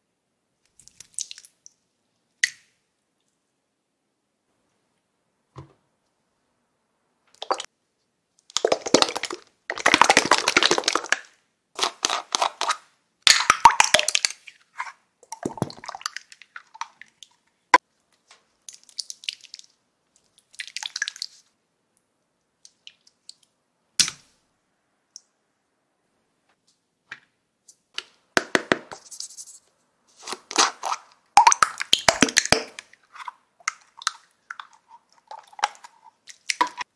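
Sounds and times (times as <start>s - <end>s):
slime squishing in hand: 0.7s - 1.8s
sticky slime sounds: 0.7s - 1.8s, 8.4s - 21.5s, 30.1s - 36.9s.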